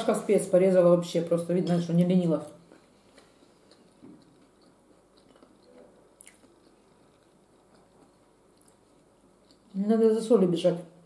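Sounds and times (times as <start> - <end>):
person chewing food: 2.6 - 9.8.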